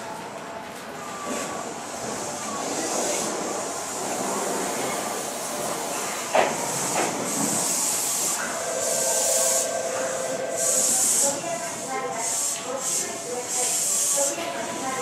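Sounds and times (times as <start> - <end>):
train whine: 3.1 - 14.9
train clunk: 5.9 - 7.8
electric train running: 6.3 - 14.8.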